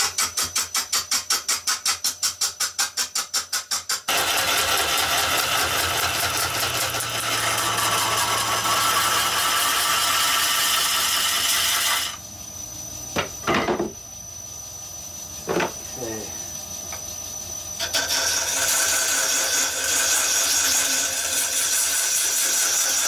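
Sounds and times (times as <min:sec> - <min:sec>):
turning tool scraping wood: 0:00.0 - 0:12.2, 0:17.8 - 0:23.0
lathe whining: 0:04.1 - 0:12.2, 0:17.8 - 0:23.0.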